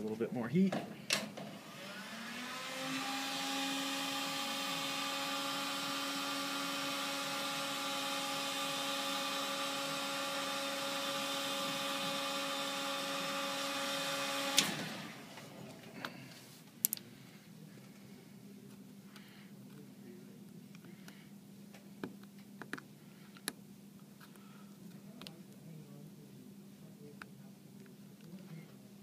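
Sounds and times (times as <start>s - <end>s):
heat gun fan humming: 0.0s - 17.3s.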